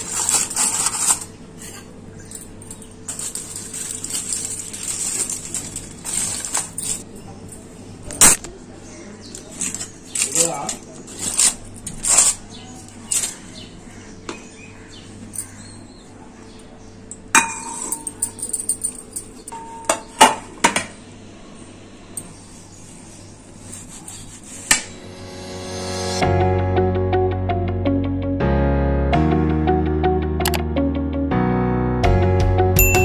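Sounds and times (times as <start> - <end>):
aluminium foil crinkling: 0.0 - 7.5, 9.3 - 13.6
background music: 25.0 - 33.0.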